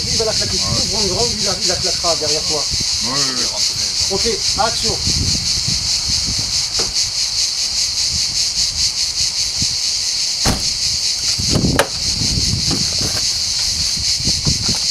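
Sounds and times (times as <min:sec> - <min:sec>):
insects buzzing: 0:00.0 - 0:14.9
car door knocks: 0:06.4 - 0:07.0, 0:10.4 - 0:10.8, 0:11.5 - 0:12.0
car door unlatching click: 0:10.4 - 0:10.8
footsteps: 0:12.7 - 0:14.9.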